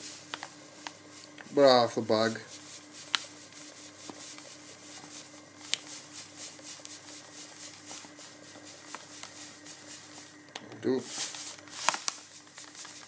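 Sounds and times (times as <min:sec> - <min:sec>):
faint steady hum: 0:00.0 - 0:13.0
sugar pouring into saucepan: 0:11.0 - 0:13.0.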